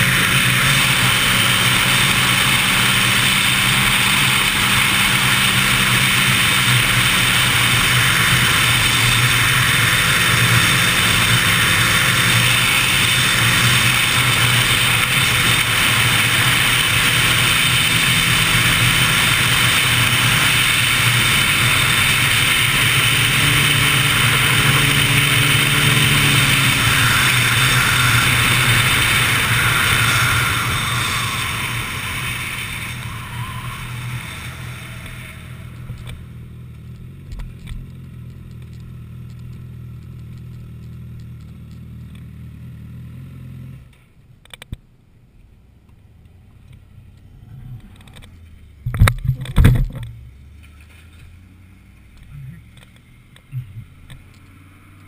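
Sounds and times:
motorcycle engine running: 0.0s - 44.0s.

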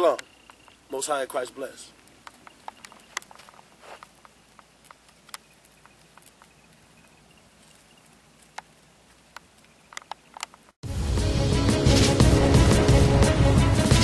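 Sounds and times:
faint sharp clicks and ticks: 1.9s - 10.8s.

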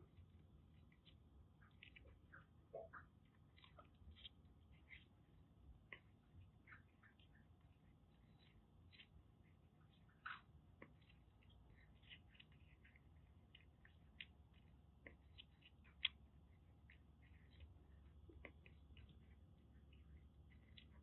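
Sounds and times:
kitten crunching dry food: 0.0s - 21.0s.

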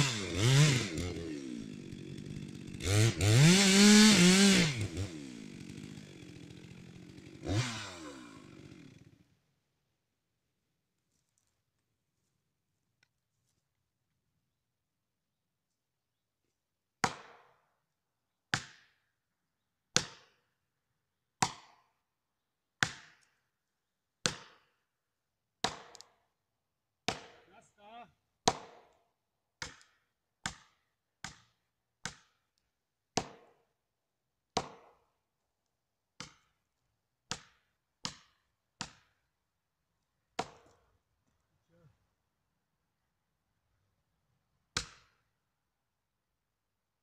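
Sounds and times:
sharp blows on felling wedges: 0.0s - 9.2s, 27.0s - 27.6s, 44.7s - 45.3s.

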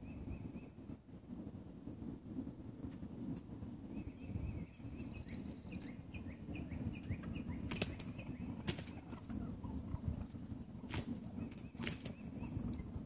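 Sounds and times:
steady low rumble: 0.0s - 13.0s
bird chirping high: 4.0s - 10.1s, 11.3s - 12.9s
wing-beat slaps: 7.6s - 9.4s.

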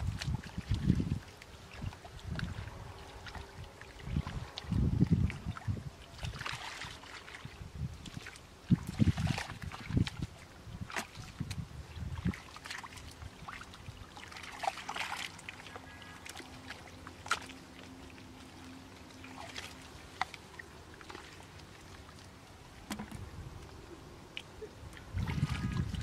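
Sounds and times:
splashing in muddy water: 0.0s - 26.0s
water dripping: 8.0s - 26.0s.

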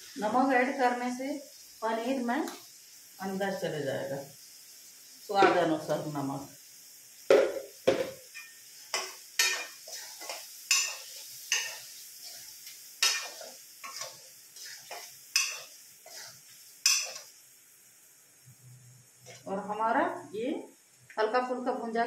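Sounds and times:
metal spoon scraping a pan: 8.3s - 17.4s.

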